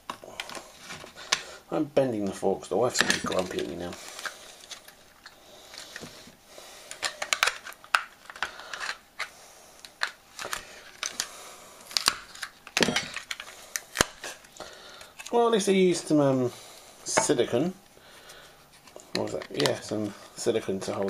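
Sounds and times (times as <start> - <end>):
plastic case cracking: 2.9 - 6.1, 6.9 - 15.4.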